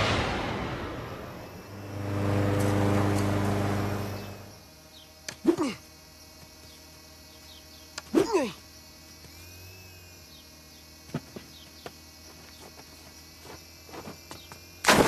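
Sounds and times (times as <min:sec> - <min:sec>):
buzzing drone motor hum: 0:00.0 - 0:15.0
short voice-like cry: 0:05.4 - 0:05.8, 0:08.1 - 0:08.6.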